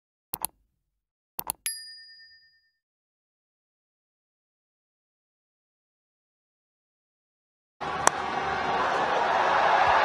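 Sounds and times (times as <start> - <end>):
high bell ding: 1.7 - 2.8.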